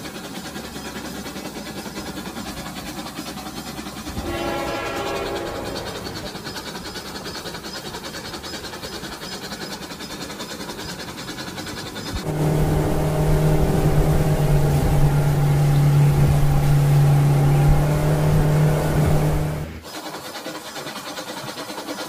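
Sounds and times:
toy train running on track: 0.0s - 12.2s, 19.8s - 22.0s
toy boat electric motor hum: 0.0s - 22.0s.

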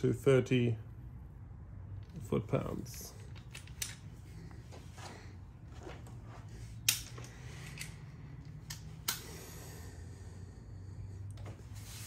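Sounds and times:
wrench and socket clicking: 3.3s - 4.0s.

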